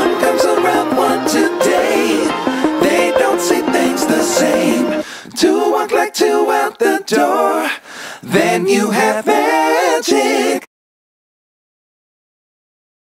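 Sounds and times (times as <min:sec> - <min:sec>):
person singing unaccompanied: 0:00.0 - 0:10.7.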